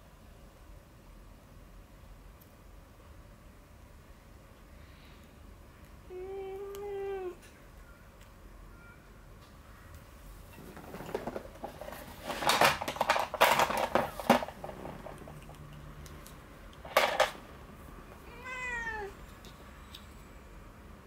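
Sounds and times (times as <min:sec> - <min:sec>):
rustling and scuffling: 0:10.4 - 0:15.2
cat meowing: 0:18.2 - 0:19.2.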